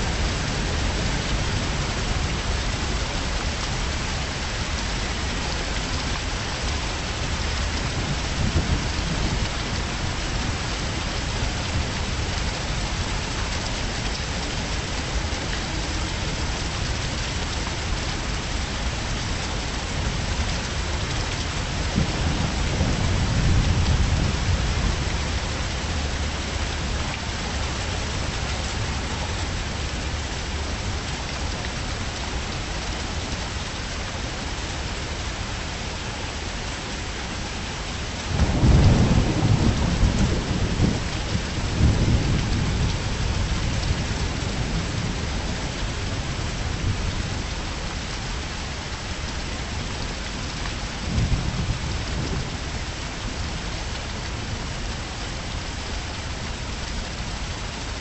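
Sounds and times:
heavy rain: 0.0 - 58.0
rolling thunder: 38.3 - 45.5, 51.1 - 52.6.

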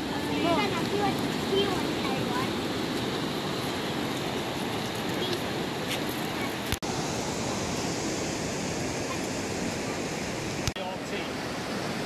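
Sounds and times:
surf washing onto shingle beach: 0.0 - 12.0.

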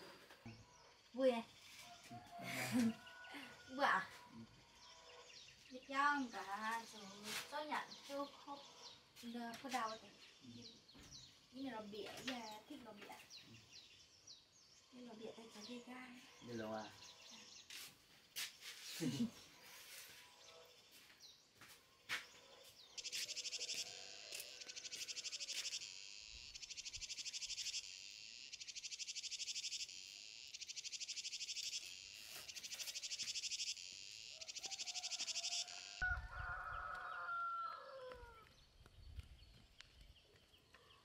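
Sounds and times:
cicadas buzzing: 0.0 - 21.2, 22.0 - 37.4
rooster crowing: 2.0 - 4.2, 23.1 - 25.6, 34.3 - 38.5.

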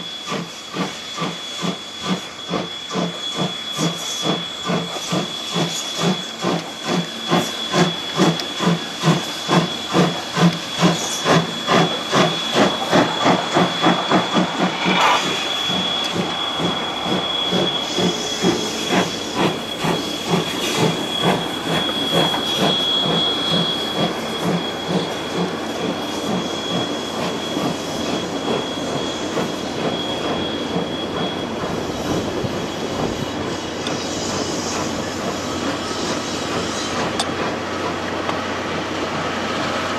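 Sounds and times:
steam locomotive exhaust chuffs: 0.0 - 39.9
train coaches rumbling over rails: 0.0 - 39.9
thin high whine: 10.0 - 37.0.

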